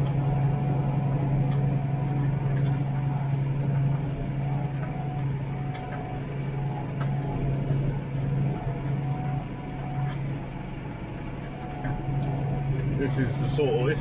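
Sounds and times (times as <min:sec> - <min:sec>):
faint clicks and rattles: 0:00.0 - 0:14.0
tractor engine droning: 0:00.0 - 0:14.0.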